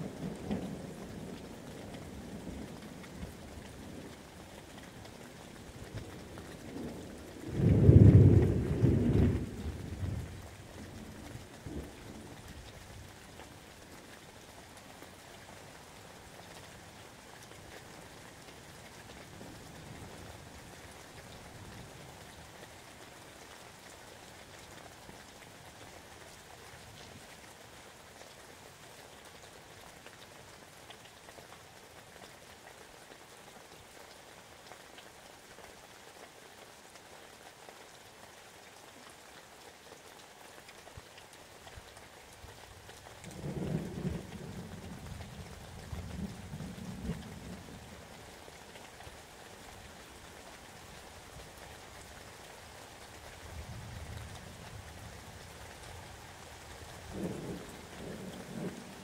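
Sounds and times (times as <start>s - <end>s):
steady rain: 0.0s - 59.0s
thunder rumbling: 7.4s - 10.4s, 57.1s - 59.0s.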